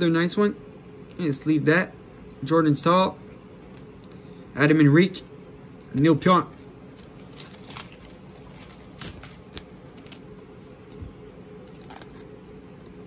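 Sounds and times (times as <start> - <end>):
faint steady hum: 0.0 - 13.0
wrapper crinkling and tearing: 6.9 - 10.3.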